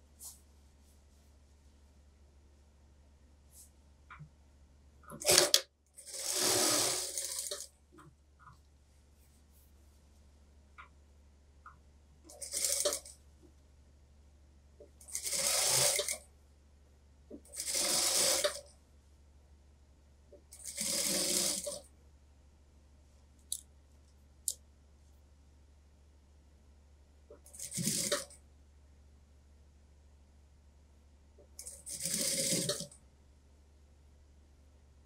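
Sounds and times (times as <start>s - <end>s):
sewing machine stitching: 5.1s - 7.7s, 12.3s - 13.2s, 15.0s - 16.2s, 17.4s - 18.7s, 20.5s - 21.8s, 27.4s - 28.3s, 31.6s - 33.0s.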